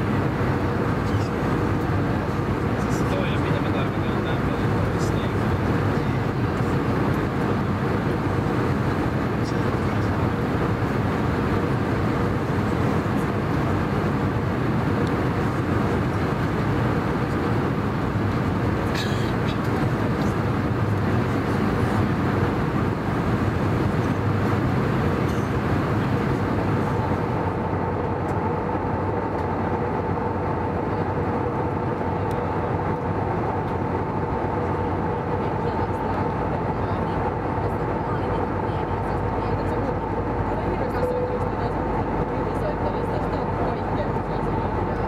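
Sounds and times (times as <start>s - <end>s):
aircraft engine drone: 0.0s - 45.0s.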